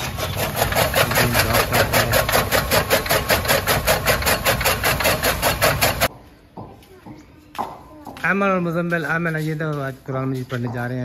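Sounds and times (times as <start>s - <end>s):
chaff cutter chopping fodder: 0.0s - 6.1s.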